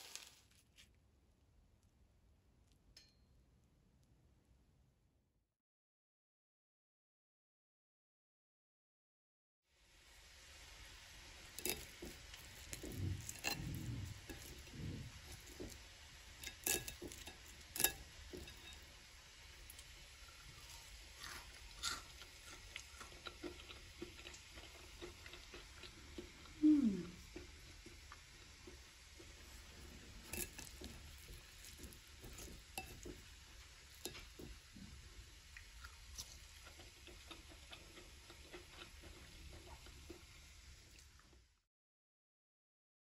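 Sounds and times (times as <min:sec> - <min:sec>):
fork crackling through fritters: 0:00.0 - 0:01.0, 0:10.8 - 0:26.6, 0:27.2 - 0:41.2.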